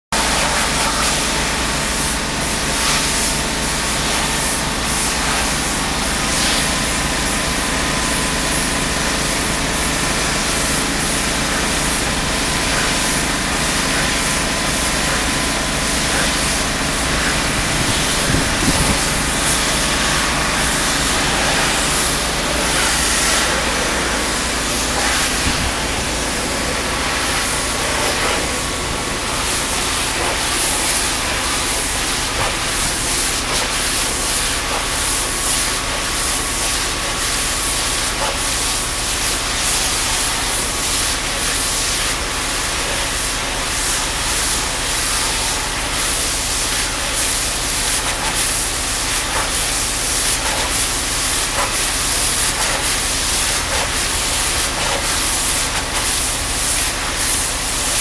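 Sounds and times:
high-pressure water spray on stone: 0:00.2 - 0:58.0
engine drone: 0:05.4 - 0:35.9.

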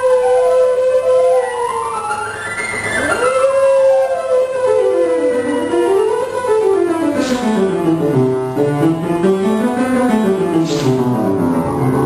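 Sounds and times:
piano scale runs: 0:00.0 - 0:12.0.

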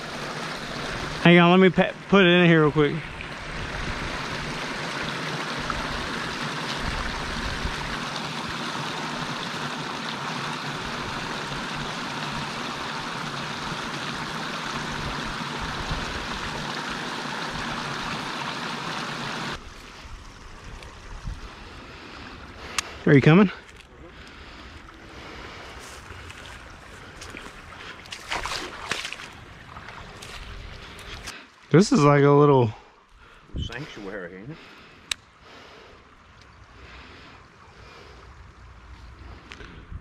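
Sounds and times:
small waterfall rushing: 0:00.0 - 0:22.6
faint outdoor background: 0:00.0 - 0:40.0.

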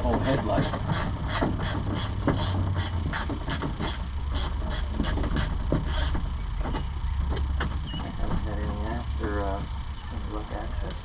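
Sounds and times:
rapid mechanical clicking: 0:00.0 - 0:07.8
low steady hum: 0:00.0 - 0:11.0.

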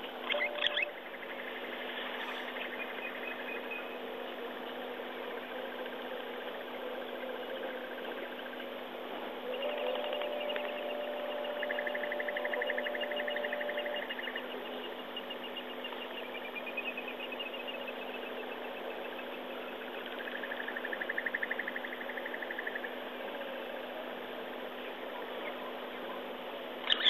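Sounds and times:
insects chirping chorus: 0:00.0 - 0:25.7
steady low hum: 0:00.0 - 0:27.0
insect pulsing trill: 0:00.2 - 0:04.7, 0:09.4 - 0:23.7.

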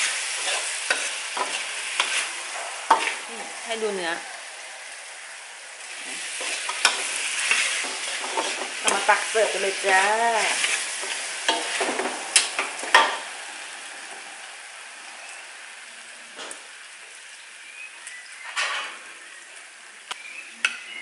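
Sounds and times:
meat sizzling in a wok: 0:00.0 - 0:21.0
metal ladle scraping wok: 0:00.1 - 0:03.5, 0:05.8 - 0:13.2.

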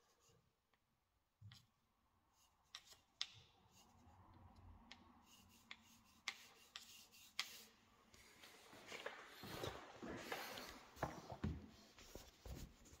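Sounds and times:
stick scraping tile joint: 0:02.4 - 0:04.0, 0:04.8 - 0:07.8.

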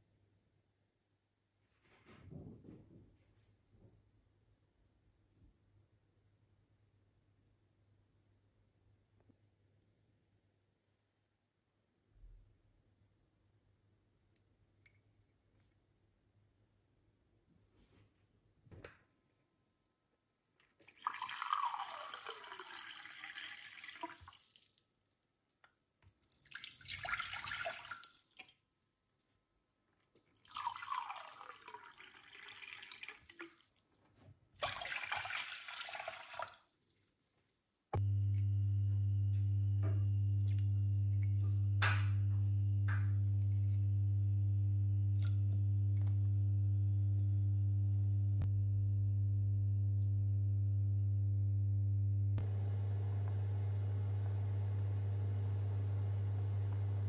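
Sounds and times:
water pouring into saucepan: 0:20.9 - 0:24.8, 0:26.3 - 0:28.5, 0:30.4 - 0:33.9, 0:34.6 - 0:37.1
low electrical hum: 0:38.0 - 0:57.0.

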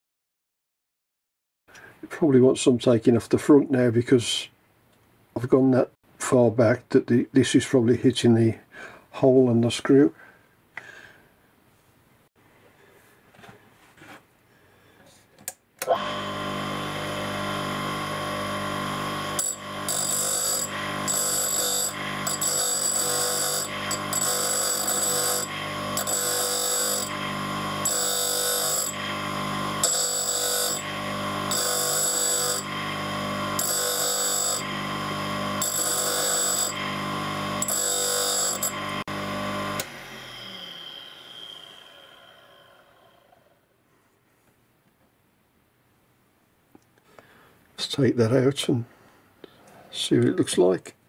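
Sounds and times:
grinder motor humming: 0:15.8 - 0:43.6.

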